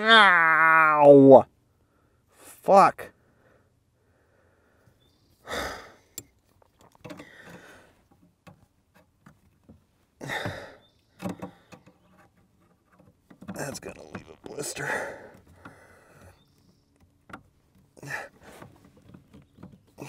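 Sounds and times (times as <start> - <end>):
man sighing heavily: 5.4 - 6.1, 10.2 - 10.8, 14.6 - 16.3.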